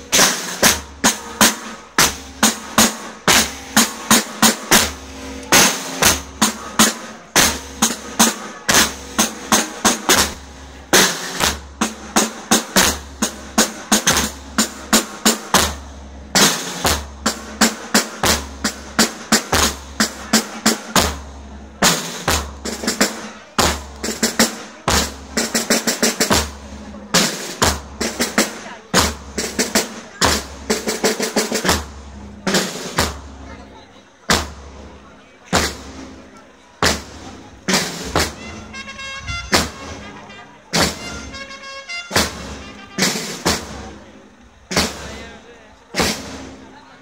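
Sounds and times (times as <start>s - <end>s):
rapid snare drum strokes: 0.0s - 33.5s, 34.3s - 46.8s
bass drum strokes: 36.8s - 41.4s.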